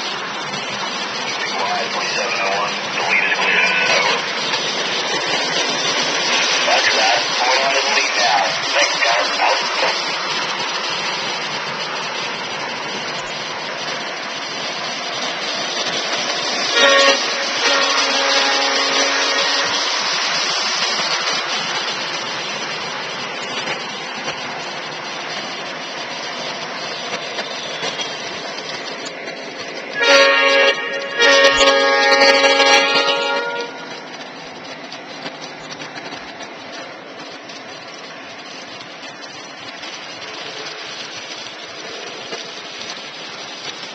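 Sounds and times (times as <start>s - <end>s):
model train running noise: 0.0s - 43.9s
model locomotive horn: 16.7s - 19.9s, 29.9s - 33.9s.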